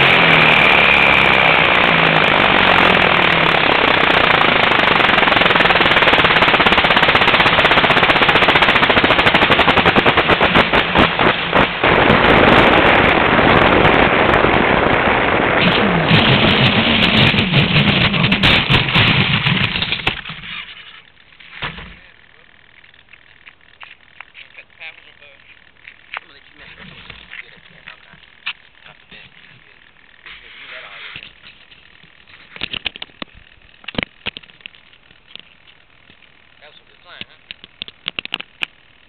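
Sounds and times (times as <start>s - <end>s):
wind and propeller rush: 0.0s - 20.4s
low humming tone: 10.6s - 39.0s
rapid rattling clicks: 31.2s - 39.0s.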